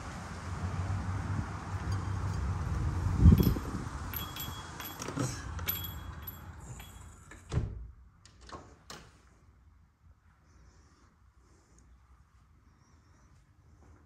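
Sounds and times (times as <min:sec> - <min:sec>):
street noise: 0:00.0 - 0:07.3
glass door swinging shut: 0:04.1 - 0:09.1.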